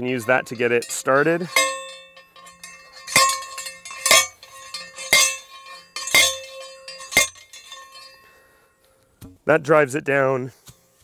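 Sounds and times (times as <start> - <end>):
post driver striking metal rod: 0.1 - 8.3.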